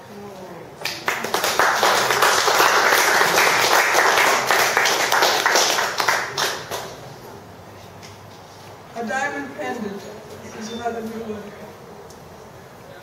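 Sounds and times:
audience applauding: 0.8s - 7.0s.

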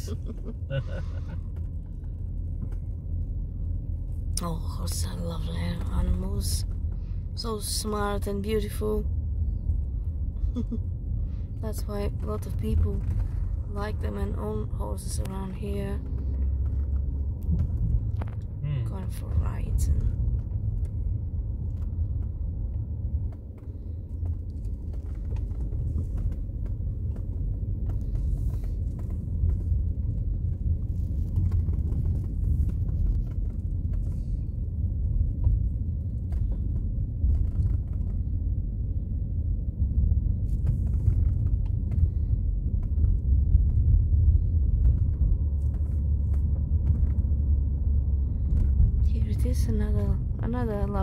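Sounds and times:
car road and engine rumble: 0.0s - 51.0s.

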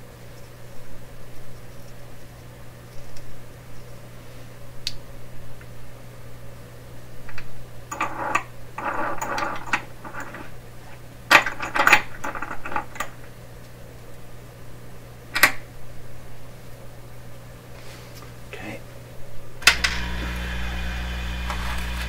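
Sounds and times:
rustling and clattering of tools: 7.9s - 10.6s, 11.3s - 13.4s
steady low hum: 18.4s - 22.0s
sharp clicks: 19.6s - 22.0s.

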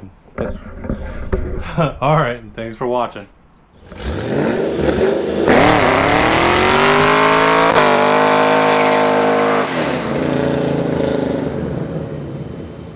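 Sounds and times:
car engine revving: 3.8s - 12.5s.

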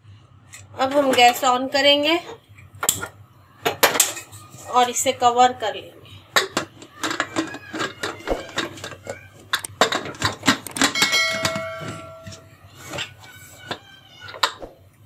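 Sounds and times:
ringing metal clang: 10.8s - 12.6s.

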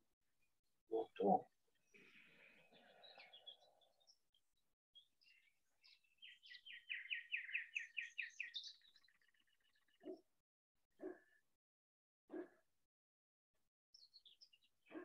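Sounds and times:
songbird song: 0.9s - 10.4s, 13.9s - 15.0s.

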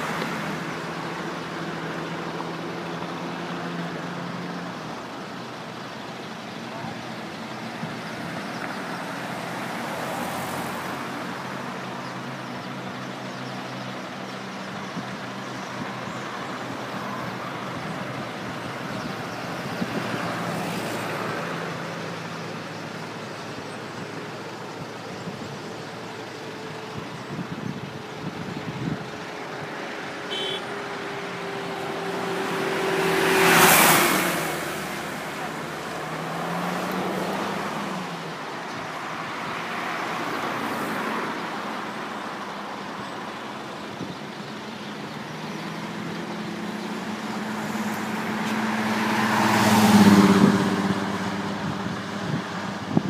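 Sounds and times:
road traffic rush: 0.0s - 53.0s
vehicle passing close: 29.6s - 38.4s.

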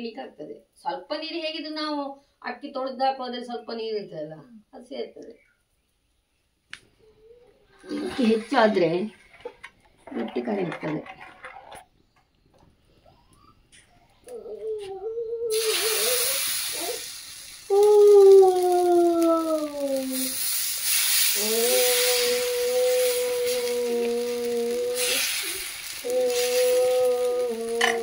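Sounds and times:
batter sizzling on a griddle: 15.5s - 28.0s
whining cry falling in pitch: 17.7s - 20.4s, 21.4s - 28.0s.

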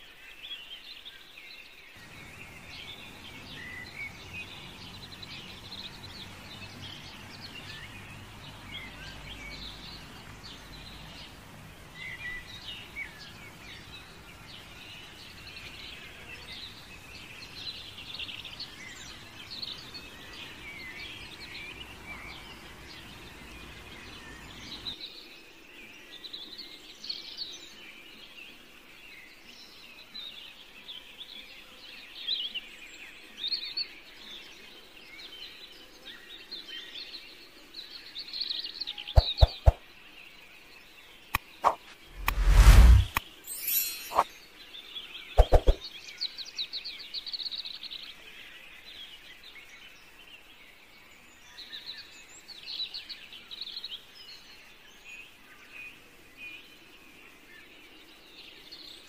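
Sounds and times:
small birds chirping: 0.3s - 25.4s, 33.6s - 59.0s
low hum: 41.7s - 43.2s.

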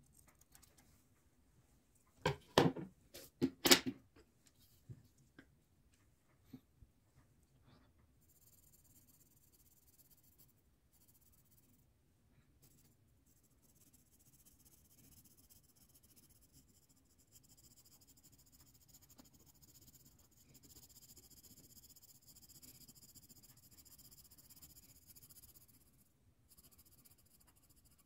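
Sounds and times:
pencil scratching on paper: 7.7s - 11.9s, 12.5s - 28.0s.

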